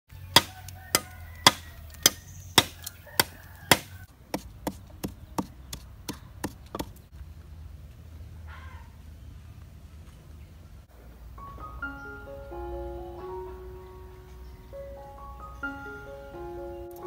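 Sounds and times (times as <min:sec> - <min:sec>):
blade chopping bamboo: 0:00.3 - 0:07.1
wooden pestle pounding in mortar: 0:00.4 - 0:07.0.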